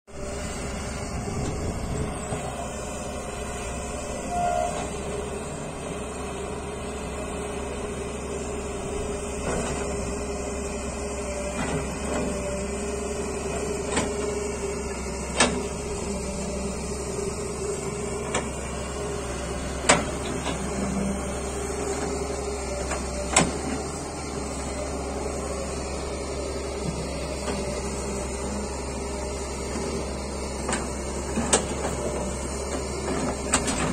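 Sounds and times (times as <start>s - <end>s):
excavator engine and hydraulics: 0.1s - 33.9s.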